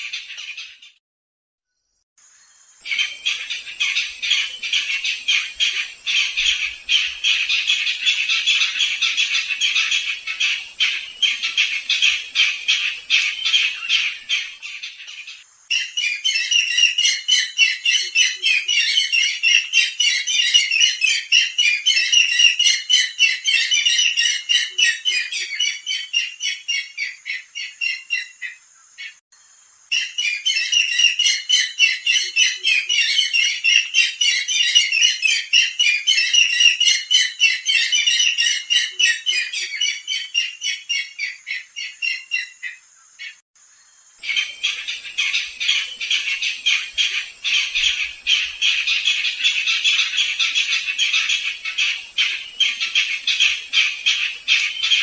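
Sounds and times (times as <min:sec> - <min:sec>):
bird calling harsh repeated notes: 0:02.8 - 0:29.2, 0:29.9 - 0:43.4.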